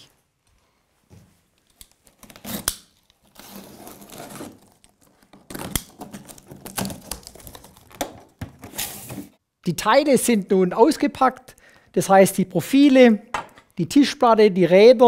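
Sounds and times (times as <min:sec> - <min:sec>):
tape and cardboard rustling: 0:01.5 - 0:09.4
knife slitting packing tape: 0:01.8 - 0:08.0.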